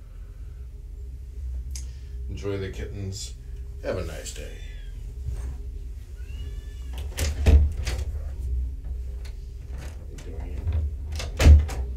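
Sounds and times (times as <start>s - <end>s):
door shutting thud: 6.9s - 9.0s, 9.7s - 11.9s.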